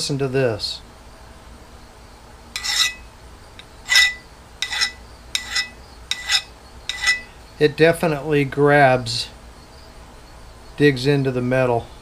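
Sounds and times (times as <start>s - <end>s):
file rasping on steel: 2.6s - 3.0s, 3.9s - 7.3s
metallic ring: 2.6s - 3.1s, 3.8s - 7.4s.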